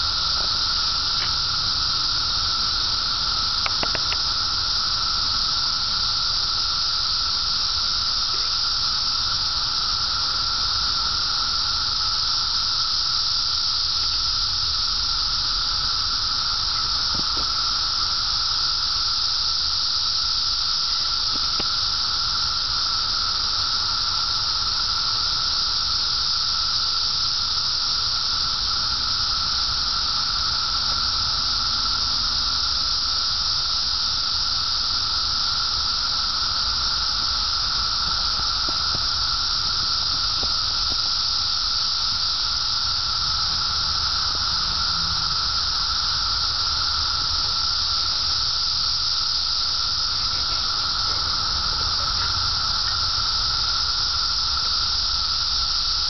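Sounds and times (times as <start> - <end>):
cicadas buzzing: 0.0 - 56.0.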